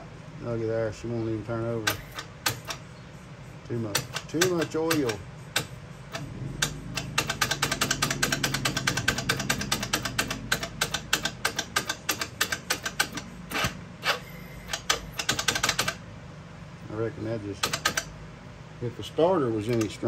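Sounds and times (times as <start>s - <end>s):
electric starter clicking: 1.8s - 2.8s, 3.8s - 16.0s, 17.4s - 18.2s, 19.6s - 20.0s.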